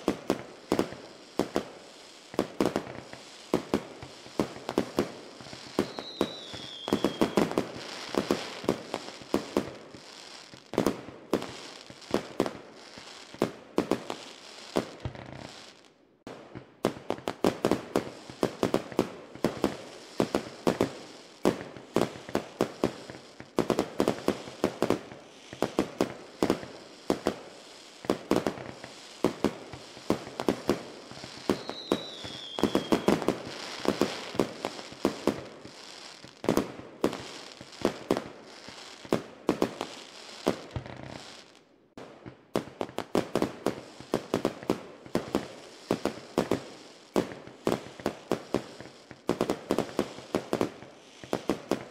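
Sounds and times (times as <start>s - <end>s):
fireworks bangs and pops: 0.0s - 51.9s
falling firework whistle: 2.3s - 10.6s, 24.1s - 41.6s.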